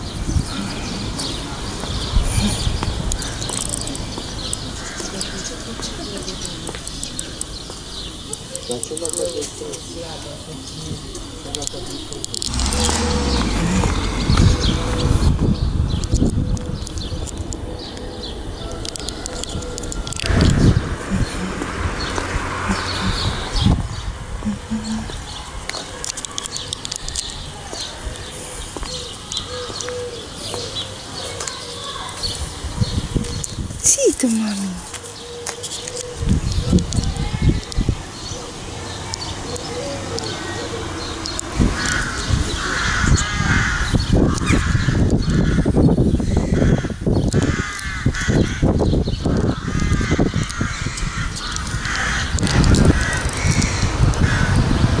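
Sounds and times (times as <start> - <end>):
small birds chirping: 0.0 - 55.0
crows cawing: 4.8 - 6.0, 41.7 - 54.7
pigeon cooing: 28.6 - 31.8.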